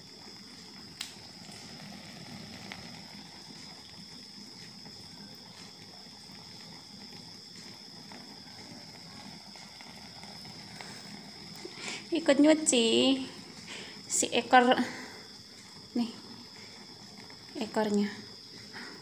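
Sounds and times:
cricket trilling: 0.0s - 19.0s.

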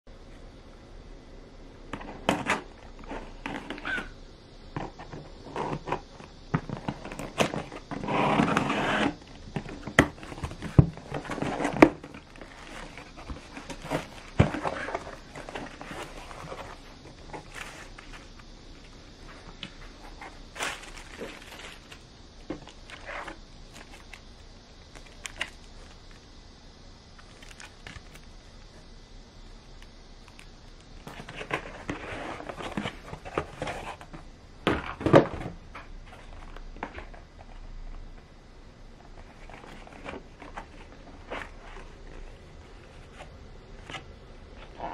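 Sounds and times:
cardboard scraping and rustling: 4.7s - 26.1s, 31.0s - 37.6s, 39.1s - 44.9s.

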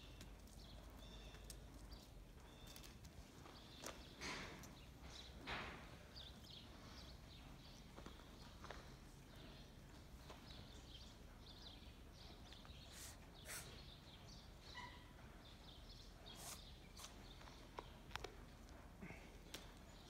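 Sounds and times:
faint bird chirps: 11.5s - 15.6s.

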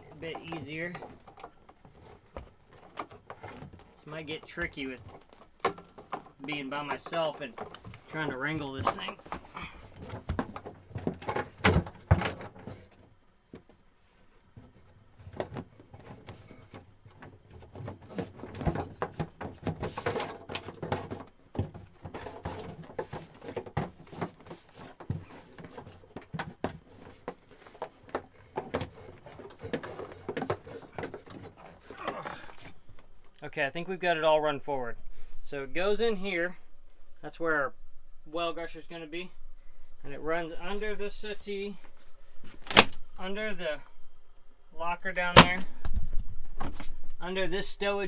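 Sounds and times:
knocks and thumps on wood: 8.7s - 12.8s, 15.3s - 32.2s.

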